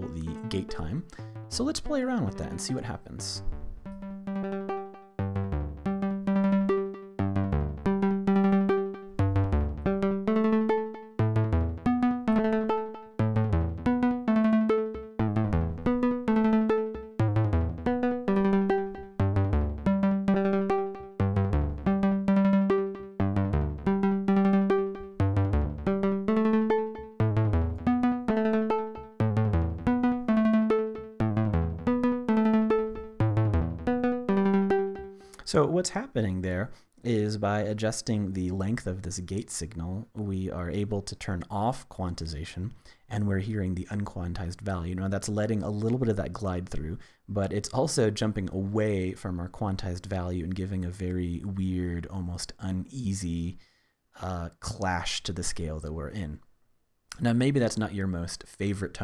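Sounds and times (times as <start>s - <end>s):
synthesizer plucked notes: 0.0s - 36.8s.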